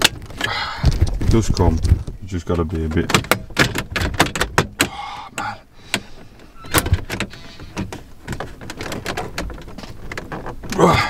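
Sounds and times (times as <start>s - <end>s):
plastic trim clicks and creaks: 0.0s - 11.0s.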